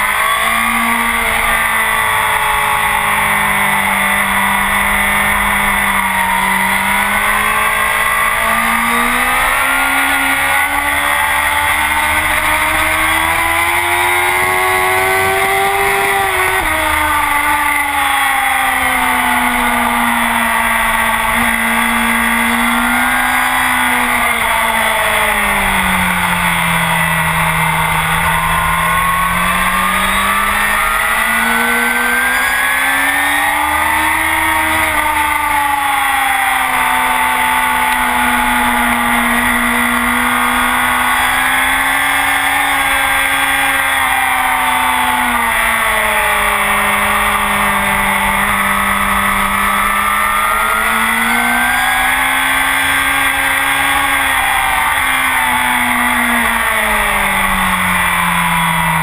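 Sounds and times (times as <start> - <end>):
sportbike engine revving: 0.0 - 59.0.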